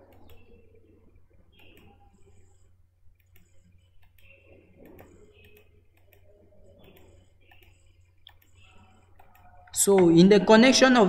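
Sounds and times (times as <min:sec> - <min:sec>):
computer mouse clicking: 0:00.0 - 0:09.8.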